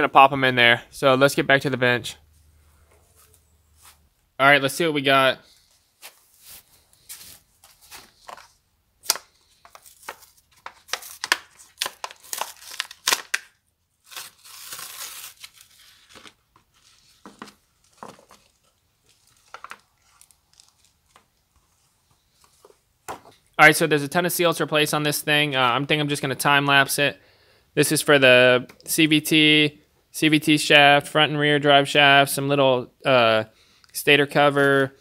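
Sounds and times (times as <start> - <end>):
plastic packaging crinkling: 6.4 - 21.6
plastic packaging tearing: 9.0 - 21.2.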